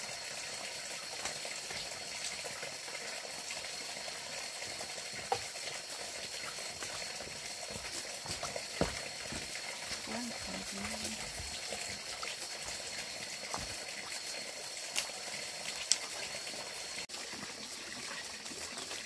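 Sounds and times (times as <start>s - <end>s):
water rushing and bubbling: 4.6s - 17.8s.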